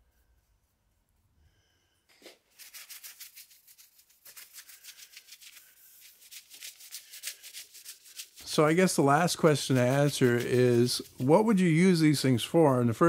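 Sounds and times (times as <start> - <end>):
rubbing strokes on wood: 2.5 - 12.4.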